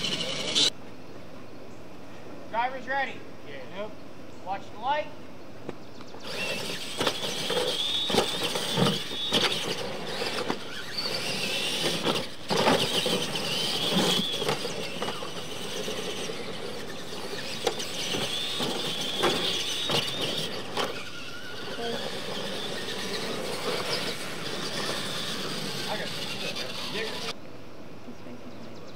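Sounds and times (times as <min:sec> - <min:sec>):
electric motors and gears whining: 0:00.0 - 0:00.8, 0:06.0 - 0:27.4
toy trucks thumping and clattering: 0:06.2 - 0:27.4.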